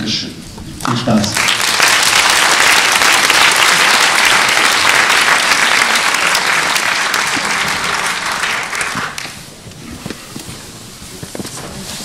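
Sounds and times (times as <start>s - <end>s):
large audience applauding: 0.8s - 9.6s.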